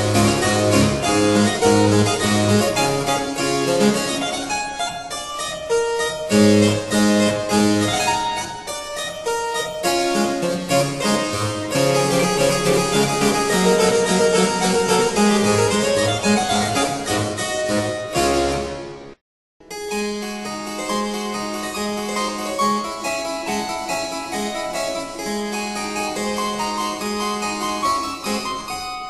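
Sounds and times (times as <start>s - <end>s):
brisk keyboard music: 0.0s - 19.2s.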